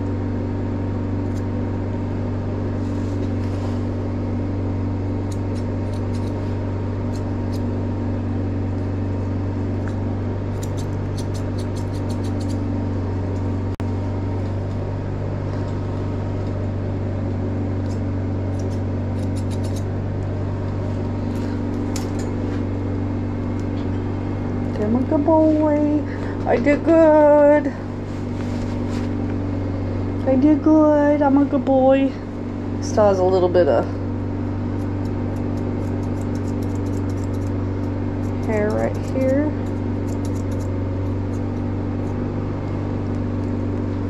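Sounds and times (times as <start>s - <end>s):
loud machine hum: 0.0s - 44.0s
scissors snipping: 5.2s - 6.4s, 7.0s - 7.7s, 9.8s - 12.7s, 17.8s - 19.9s, 21.7s - 22.4s, 34.7s - 42.2s.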